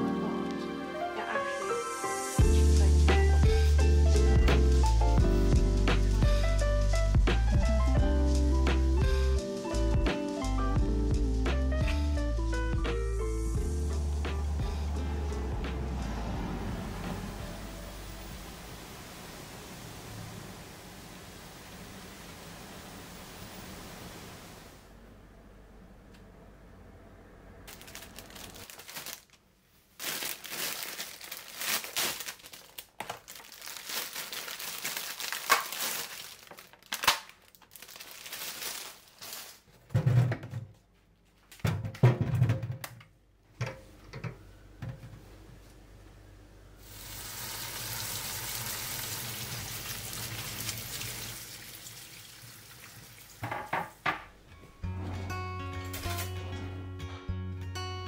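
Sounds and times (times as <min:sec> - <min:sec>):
mushrooms rustling in a colander: 0:27.7 - 0:39.8
running tap water: 0:46.8 - 0:54.1
knocks in a metal sink: 0:53.4 - 0:54.3.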